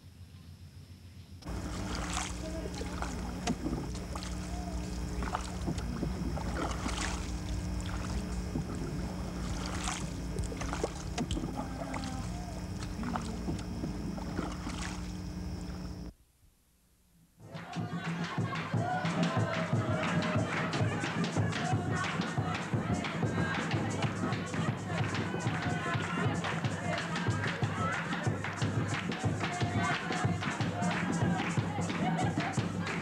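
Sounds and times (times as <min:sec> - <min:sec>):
steady low hum: 0:00.1 - 0:16.2
wading footsteps in water and mud: 0:01.4 - 0:16.1.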